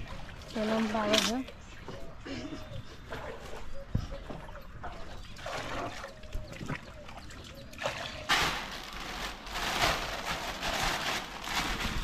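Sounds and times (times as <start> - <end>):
water pouring and splashing: 4.9 - 7.0, 7.8 - 12.0.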